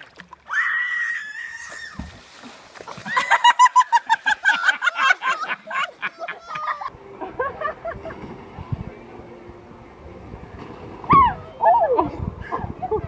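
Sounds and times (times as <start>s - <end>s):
high-pitched laughter: 3.0s - 8.0s.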